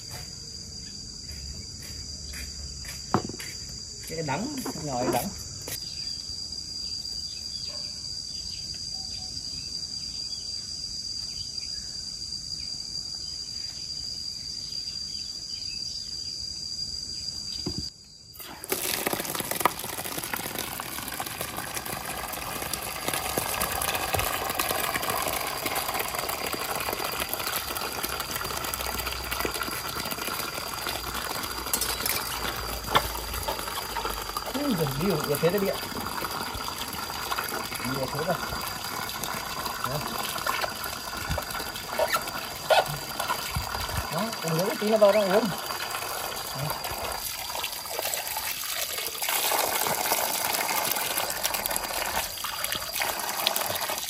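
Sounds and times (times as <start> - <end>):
water pouring into plastic basin: 18.4 - 54.0.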